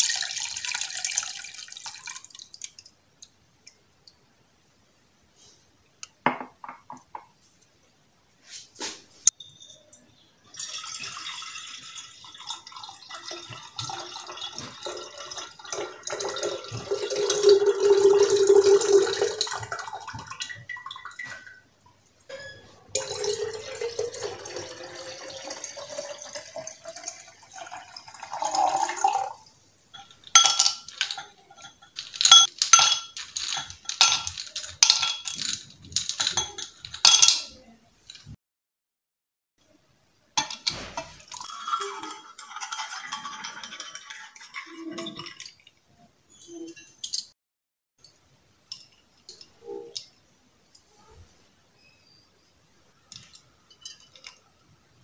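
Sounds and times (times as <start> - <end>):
liquid pouring into glass pitcher: 0.0 - 2.9, 10.5 - 21.6, 22.9 - 32.3, 41.0 - 45.8
ice cubes clinking into glass: 13.6 - 19.7, 30.0 - 38.2, 40.4 - 45.5.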